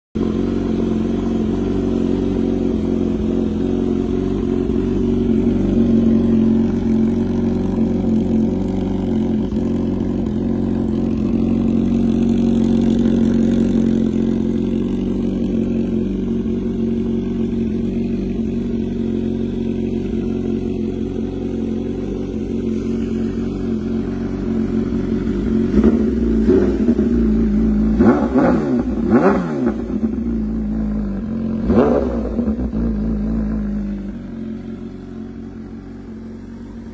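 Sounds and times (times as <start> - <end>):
motorcycle engine idling: 0.2 - 36.9
engine revving: 22.1 - 34.0.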